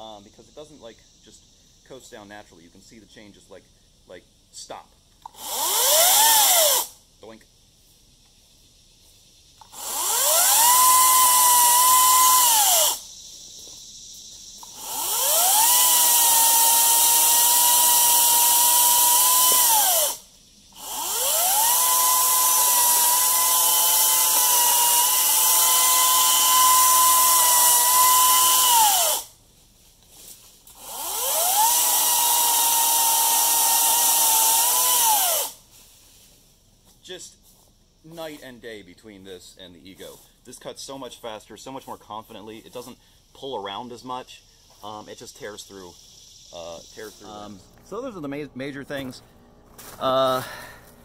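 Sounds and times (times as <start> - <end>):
electric chainsaw whining: 5.2 - 7.0, 9.6 - 13.1, 14.6 - 29.4, 30.7 - 35.6.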